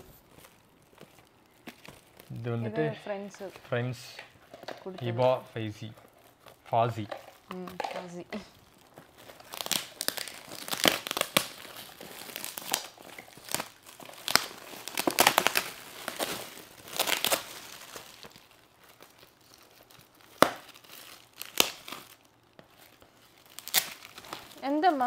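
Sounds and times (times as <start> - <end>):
foil gift wrap tearing and crinkling: 0.0 - 25.0.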